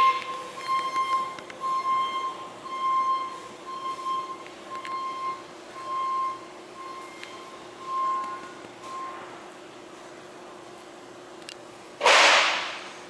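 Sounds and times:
electronic beeper tone: 0:00.0 - 0:09.2
faint steady hum: 0:00.0 - 0:12.0.

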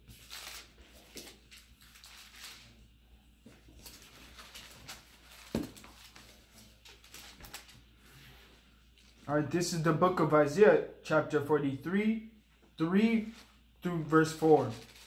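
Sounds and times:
paper pages rustling: 0:00.0 - 0:02.7, 0:03.6 - 0:07.8, 0:14.1 - 0:15.0.

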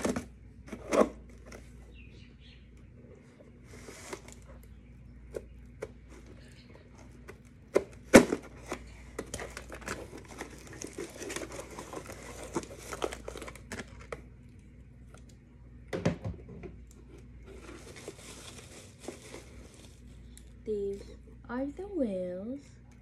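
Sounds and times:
packing tape tearing: 0:07.7 - 0:14.2
bubble wrap crinkling: 0:08.5 - 0:15.3, 0:17.1 - 0:20.6.

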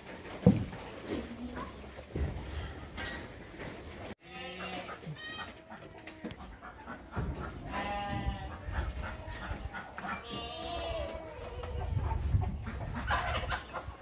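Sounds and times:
goats bleating: 0:04.2 - 0:06.4, 0:07.5 - 0:11.9.

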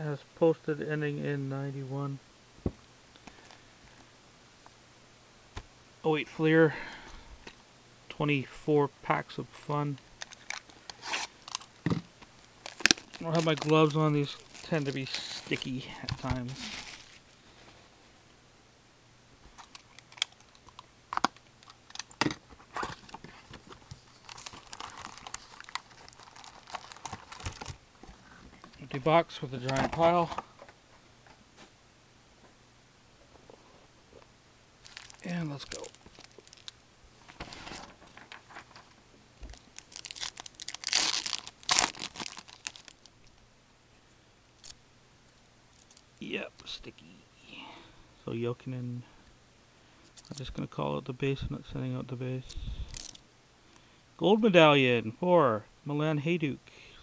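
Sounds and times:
pack wrappers crinkling: 0:10.2 - 0:11.8, 0:12.6 - 0:17.3, 0:19.6 - 0:27.8, 0:34.8 - 0:43.3, 0:52.9 - 0:53.2.

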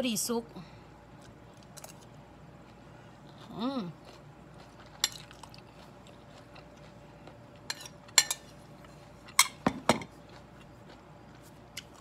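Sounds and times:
metal spoon clinking on plate: 0:07.7 - 0:08.4.

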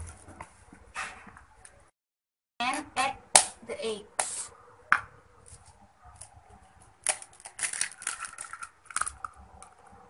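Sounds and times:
eggshell crackling: 0:06.9 - 0:10.0.

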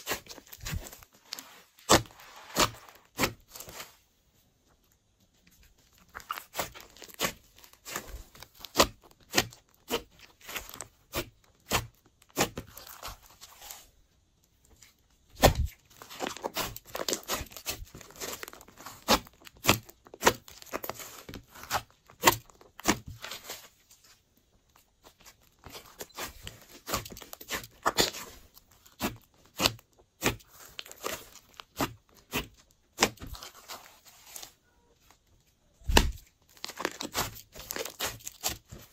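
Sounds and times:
slime crackling and popping: 0:05.9 - 0:13.8, 0:15.3 - 0:23.6, 0:25.0 - 0:33.8, 0:35.8 - 0:38.9.

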